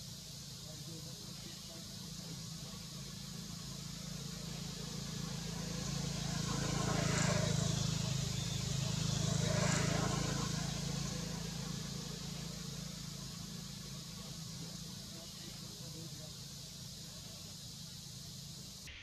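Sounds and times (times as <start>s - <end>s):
steady low hum: 0.0s - 18.9s
motor vehicle passing by: 0.4s - 18.9s.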